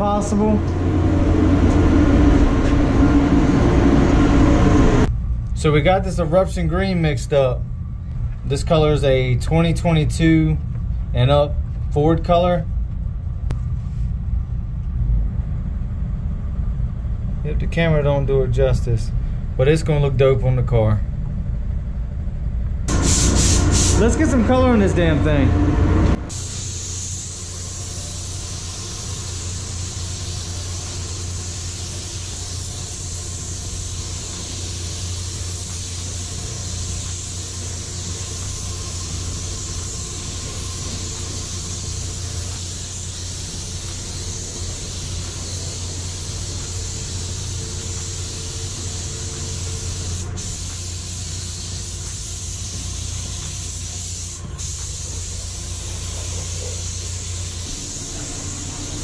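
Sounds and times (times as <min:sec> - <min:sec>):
spray booth fans humming: 0:00.0 - 0:20.6, 0:22.9 - 0:59.0
spray gun hissing: 0:22.9 - 0:24.6, 0:26.3 - 0:59.0.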